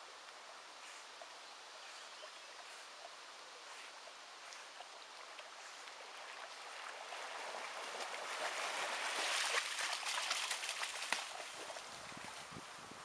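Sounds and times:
water splashing and sloshing: 3.8 - 12.5.

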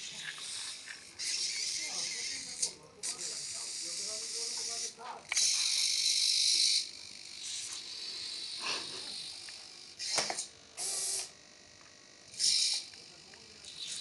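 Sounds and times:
servo motors whirring: 0.0 - 14.0.

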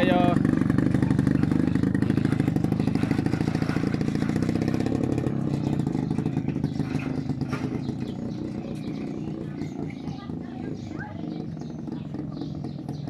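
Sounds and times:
motorcycle engine pulling away: 0.0 - 13.0.

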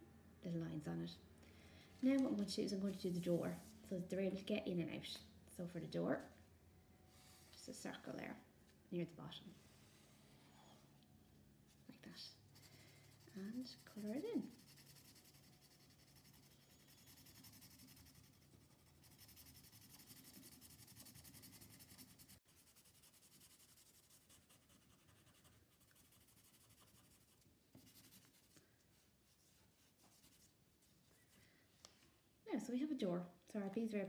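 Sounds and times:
marker scribbling on paper: 12.6 - 30.5.

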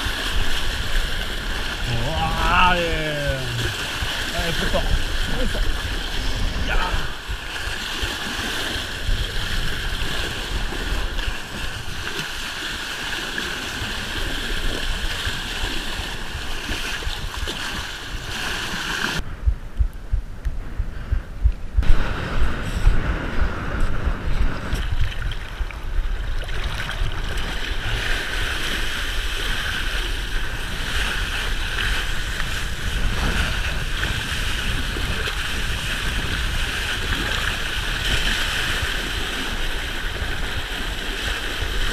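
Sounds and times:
water rushing past board: 0.0 - 19.2
wind buffeting microphone: 0.0 - 41.9.

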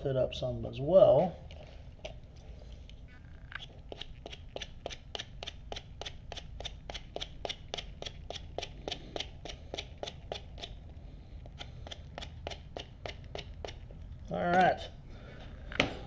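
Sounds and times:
tool scratching leather: 3.5 - 14.0.

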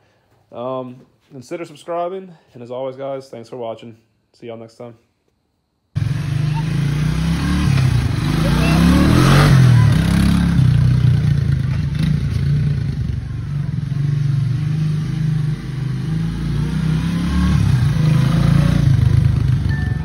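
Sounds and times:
four-stroke engine revving: 6.0 - 20.0.

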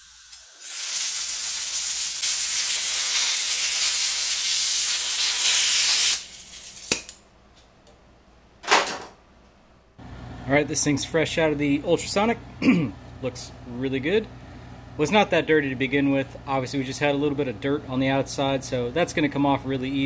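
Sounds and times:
compressed air blow gun hissing: 0.0 - 6.9.

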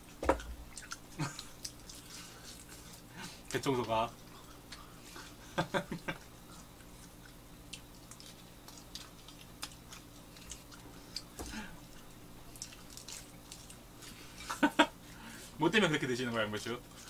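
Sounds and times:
faint chewing mouth sounds: 0.0 - 15.6.

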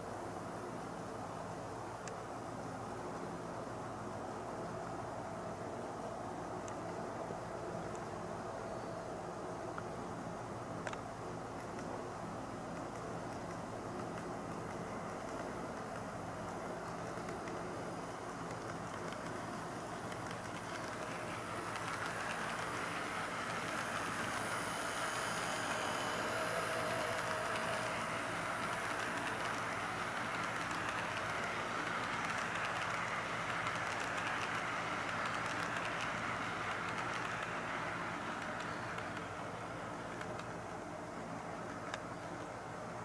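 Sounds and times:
model train running on track: 12.5 - 42.9.

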